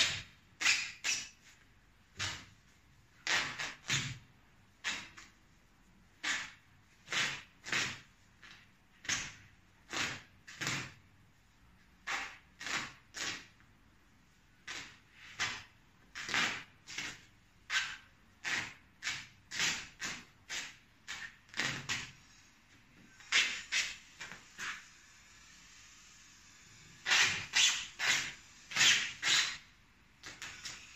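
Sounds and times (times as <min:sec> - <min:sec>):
nylon fabric tearing: 0:03.2 - 0:04.2, 0:27.0 - 0:30.9.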